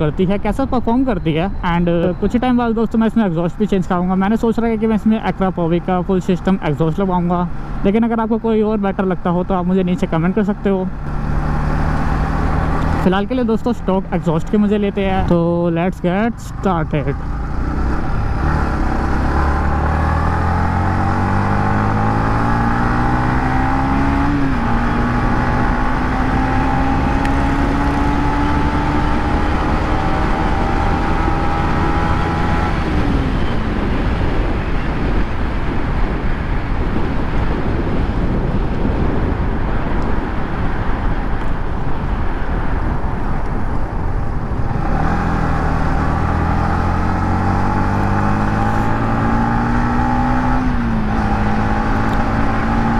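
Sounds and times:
wind rush: 9.8s - 52.9s
motorcycle engine revving: 10.1s - 15.4s, 16.0s - 35.4s, 44.3s - 52.9s.

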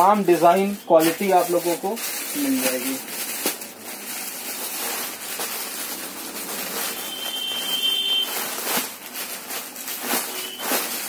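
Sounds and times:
rustling handling noise: 0.0s - 11.0s.

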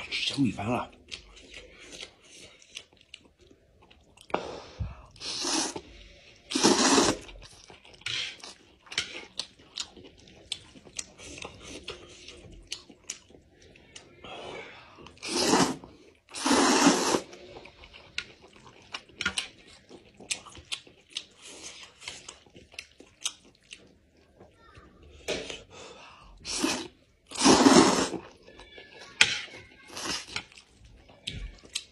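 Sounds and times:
wet chewing and lip-smacking: 0.9s - 4.3s, 7.1s - 14.2s, 17.2s - 24.6s, 28.2s - 31.9s
loud noodle slurps: 5.2s - 7.4s, 15.2s - 17.7s, 26.4s - 28.4s.

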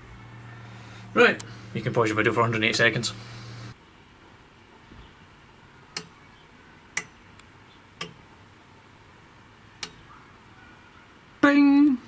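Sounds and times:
sharp clicks: 6.0s - 8.3s, 9.7s - 10.1s.

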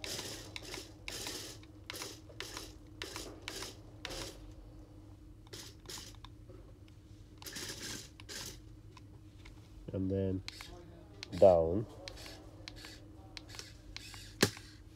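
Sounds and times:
toy wheel motors whirring: 0.0s - 4.4s, 5.5s - 6.2s, 7.4s - 8.6s, 10.4s - 14.8s.

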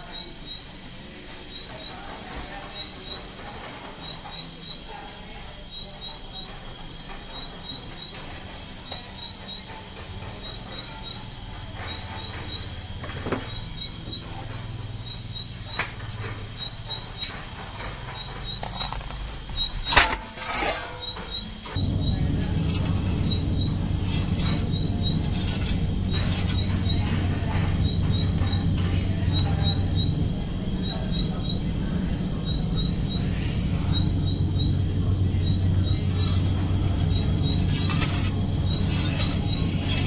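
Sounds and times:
metal peel scraping and clattering: 8.0s - 31.1s, 35.3s - 40.0s
low hum: 10.2s - 40.0s.

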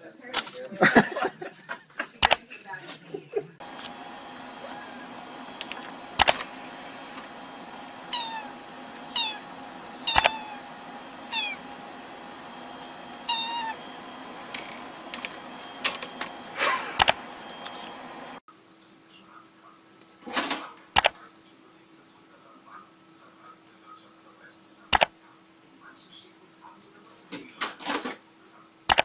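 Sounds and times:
sharp clicks: 2.2s - 2.4s, 5.5s - 6.5s, 9.8s - 10.5s, 14.4s - 17.8s, 21.0s - 21.2s
steady low hum: 3.6s - 18.4s
cat meowing: 8.0s - 10.6s, 11.2s - 11.6s, 13.2s - 13.8s.

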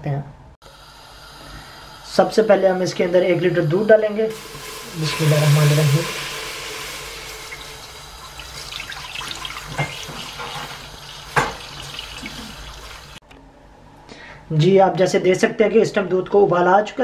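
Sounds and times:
milk pouring into metal pot: 4.4s - 13.0s.

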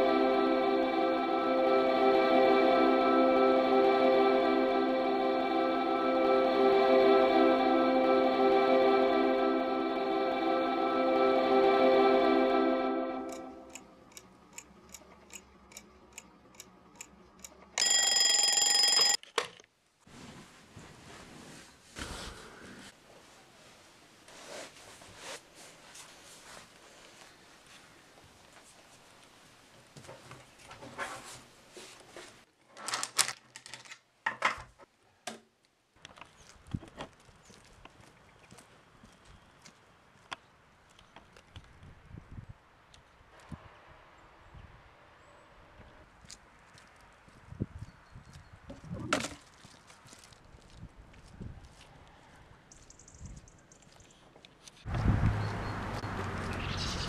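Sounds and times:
alarm clock ringing: 17.8s - 19.2s.

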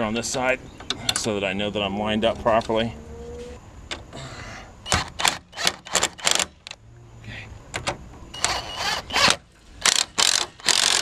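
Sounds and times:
hand ratchet clicking: 9.2s - 11.0s.

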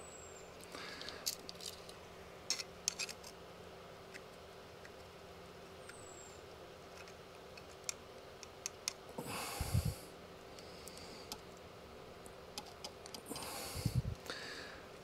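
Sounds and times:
small metal parts clicking: 0.6s - 3.4s, 6.9s - 9.0s
person breathing: 0.7s - 1.4s, 9.2s - 11.4s, 13.2s - 15.0s.

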